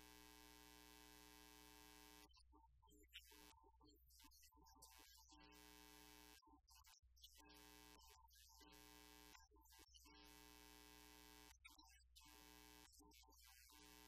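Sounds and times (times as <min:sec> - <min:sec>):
intermittent buzz: 0:00.0 - 0:02.3, 0:03.1 - 0:03.6, 0:04.6 - 0:06.6, 0:07.4 - 0:14.0.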